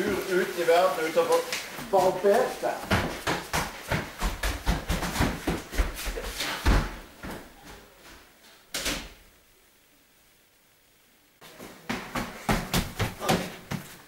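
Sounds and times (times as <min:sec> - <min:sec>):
rustling: 0:00.0 - 0:06.6.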